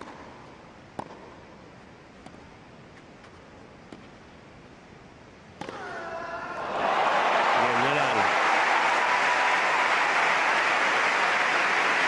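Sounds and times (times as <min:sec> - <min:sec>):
tennis racket hitting ball: 0:01.0 - 0:01.3
crowd reaction: 0:06.1 - 0:12.0
hushed stadium crowd: 0:06.2 - 0:12.0.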